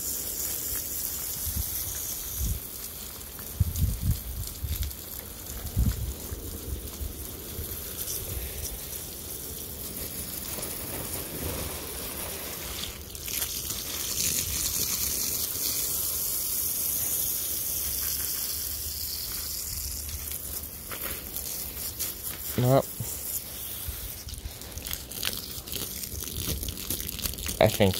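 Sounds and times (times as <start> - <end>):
water spraying onto soil: 0.0 - 27.9.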